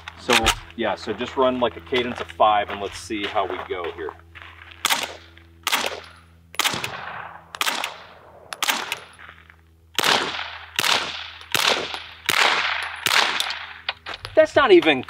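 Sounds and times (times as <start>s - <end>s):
suppressed gunshots: 4.8s - 9.2s, 10.0s - 13.9s.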